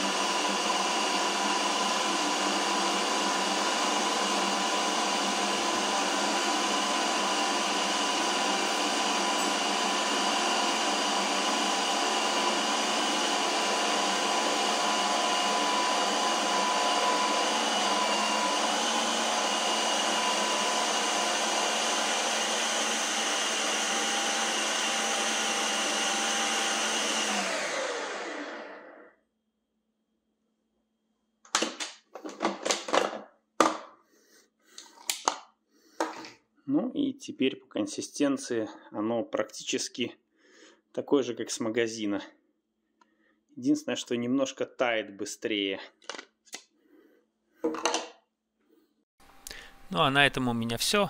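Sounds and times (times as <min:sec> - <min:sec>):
ice cream maker motor whirring: 0:00.0 - 0:29.1.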